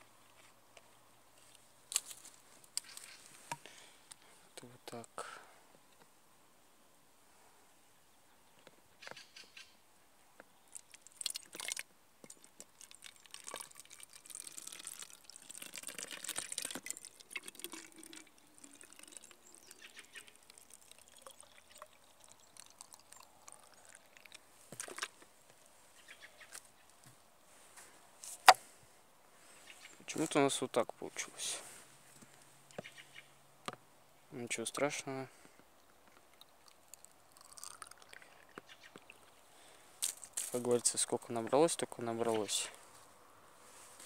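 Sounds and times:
liquid pouring and gurgling: 0:10.7 - 0:25.1, 0:36.4 - 0:39.2.

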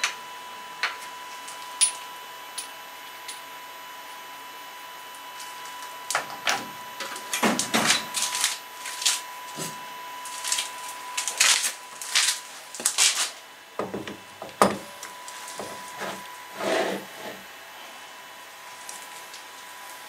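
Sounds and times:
tools and parts clicking and knocking: 0:00.8 - 0:03.5.

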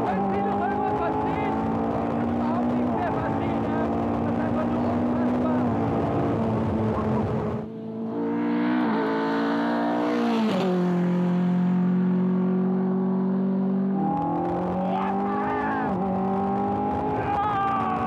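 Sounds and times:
car engine at full throttle: 0:00.0 - 0:18.0.

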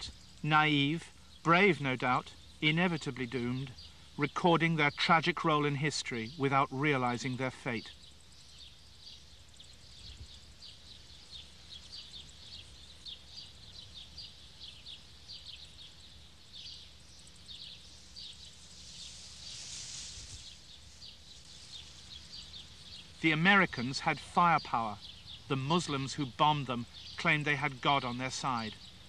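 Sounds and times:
soft hiss: 0:00.0 - 0:29.0
small high chirps: 0:07.2 - 0:29.0.

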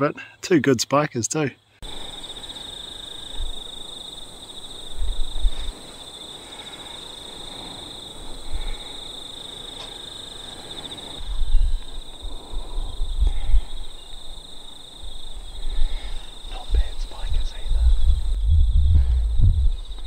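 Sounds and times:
insects chirring: 0:00.0 - 0:20.0
wind on microphone: 0:04.9 - 0:05.8, 0:11.2 - 0:14.4, 0:15.1 - 0:20.0.

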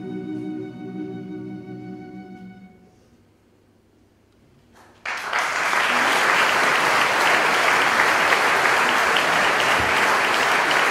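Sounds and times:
audience applauding: 0:05.0 - 0:10.9.

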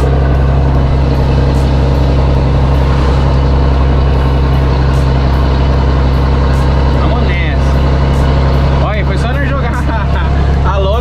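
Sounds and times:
truck diesel engine running: 0:00.0 - 0:11.0.

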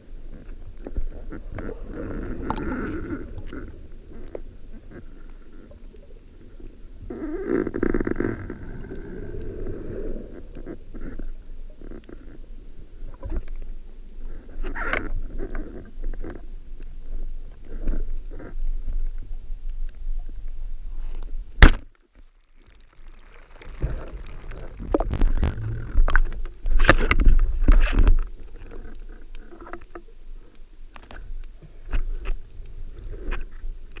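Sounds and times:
underwater water rumble: 0:00.0 - 0:34.0
water rushing: 0:22.9 - 0:26.4.

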